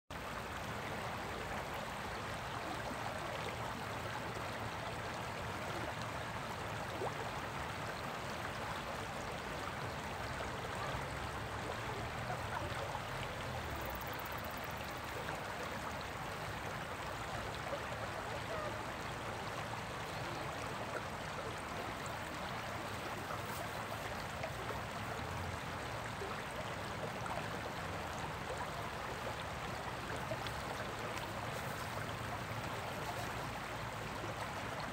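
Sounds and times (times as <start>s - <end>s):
river water rushing over rocks: 8.4s - 34.9s.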